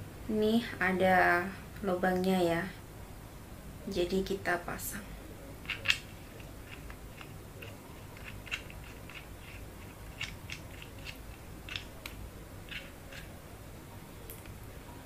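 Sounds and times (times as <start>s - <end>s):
small parts clicking and scraping: 5.6s - 13.4s.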